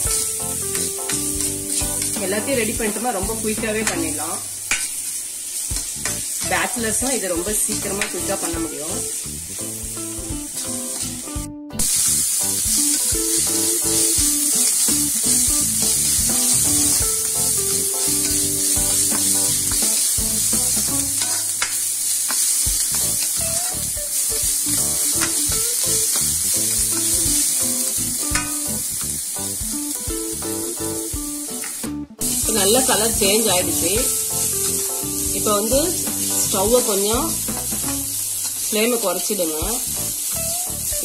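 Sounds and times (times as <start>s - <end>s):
onions sizzling in hot oil: 0.0s - 41.0s.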